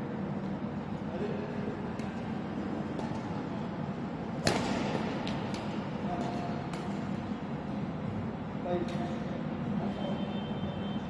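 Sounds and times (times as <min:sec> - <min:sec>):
steady low hum: 0:00.0 - 0:11.0
racket hitting shuttlecock: 0:04.4 - 0:07.2.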